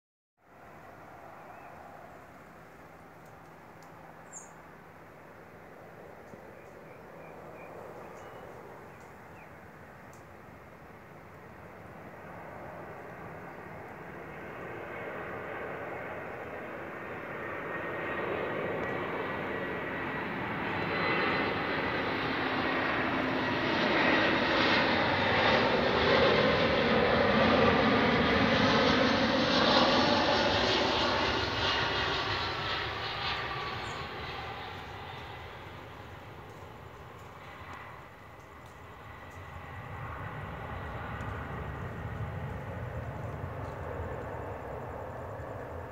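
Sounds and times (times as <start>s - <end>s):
jet airliner flying past: 0.4s - 45.9s.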